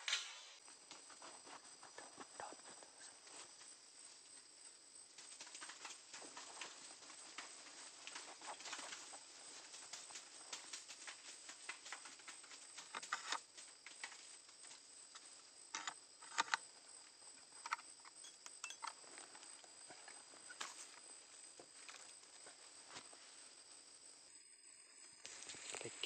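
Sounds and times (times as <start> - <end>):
dry twigs and leaves crackling: 5.1 - 16.4, 25.2 - 26.0.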